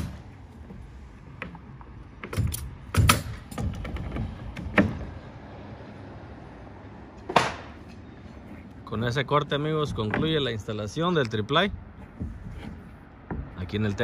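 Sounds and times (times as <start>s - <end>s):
nail gun firing: 2.3s - 3.5s.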